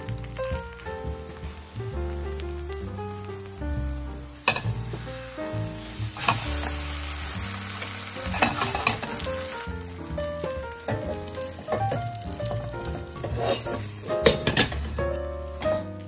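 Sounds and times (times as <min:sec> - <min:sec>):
light background music: 0:00.0 - 0:16.0
pancake sizzling in oil: 0:03.5 - 0:10.0, 0:10.7 - 0:15.0.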